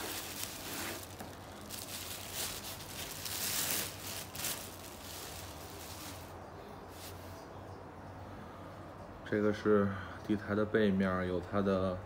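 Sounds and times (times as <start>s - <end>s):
plastic wrapping crinkling: 0.0s - 7.2s.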